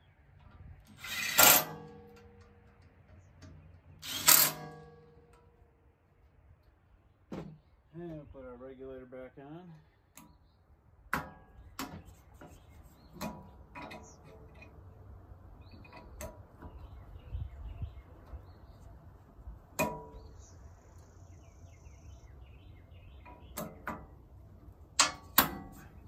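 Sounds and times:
faint birds chirping: 0:00.0 - 0:01.0, 0:02.3 - 0:04.3, 0:05.0 - 0:26.0
sharp clicks and knocks: 0:00.4 - 0:05.6, 0:11.1 - 0:14.8, 0:24.9 - 0:26.0.

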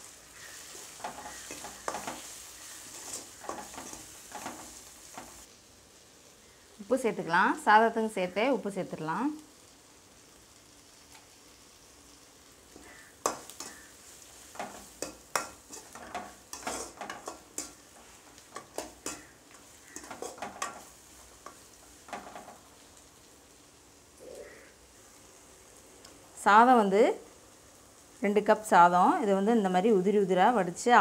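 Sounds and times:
faint sizzle: 0:00.0 - 0:31.0
metal ladle scraping pan: 0:00.4 - 0:05.4, 0:12.8 - 0:22.6.

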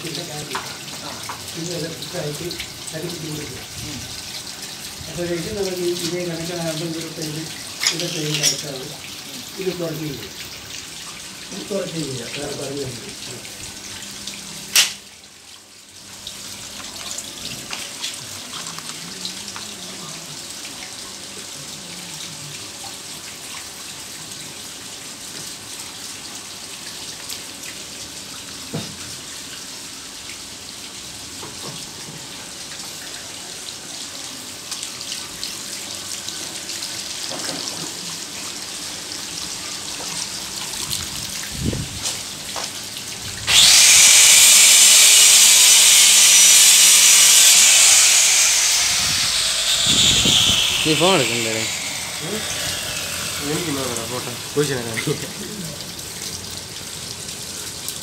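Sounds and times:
water running into pond: 0:00.0 - 0:58.0
sharp click: 0:14.8 - 0:15.0.

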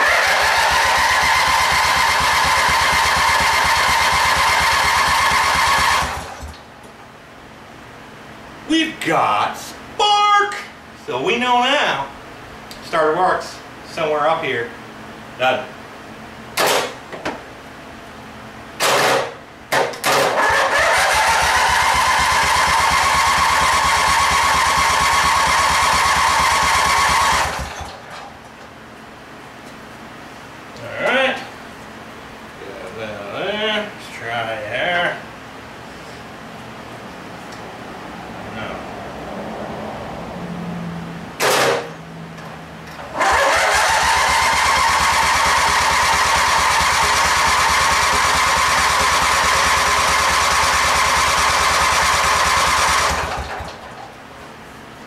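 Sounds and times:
engine cranking by electric starter: 0:00.0 - 0:06.6, 0:18.8 - 0:28.4, 0:41.4 - 0:42.0, 0:42.9 - 0:54.2.

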